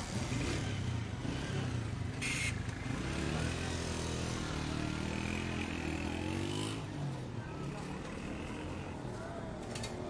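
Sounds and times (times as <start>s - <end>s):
motorcycle engine revving: 0.0s - 7.2s.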